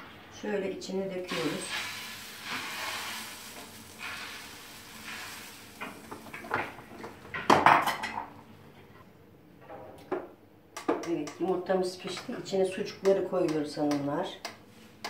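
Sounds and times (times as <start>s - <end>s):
egg batter sizzling on hot plate: 1.3s - 8.1s.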